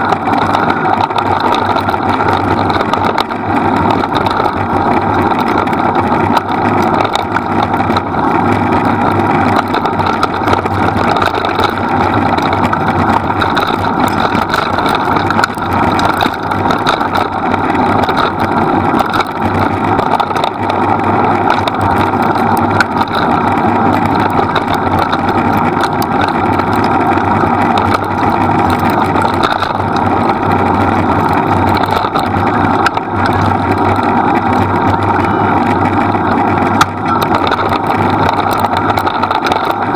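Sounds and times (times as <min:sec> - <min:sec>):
small clicks: 0:00.0 - 0:39.9
wheels rumbling on dirt trail: 0:00.0 - 0:39.9.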